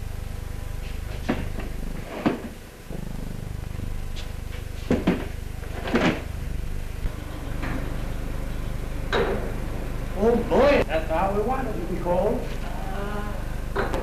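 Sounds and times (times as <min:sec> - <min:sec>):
steady low hum: 0:00.0 - 0:14.0
boxes knocking as set down: 0:01.1 - 0:02.6, 0:04.8 - 0:06.3.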